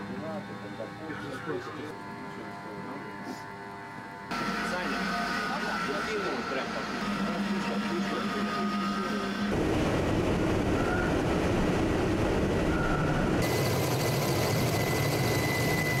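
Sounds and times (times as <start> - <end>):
ship rumble and water rushing: 9.5 - 13.4
wind noise: 9.5 - 13.5.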